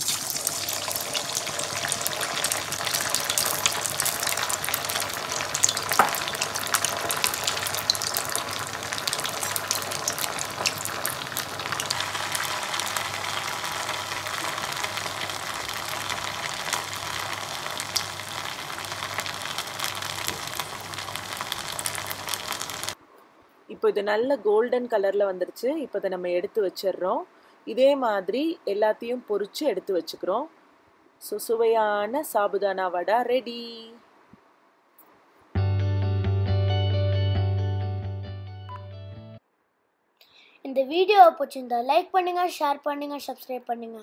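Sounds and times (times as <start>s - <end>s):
food sizzling in hot oil: 0.0s - 23.0s.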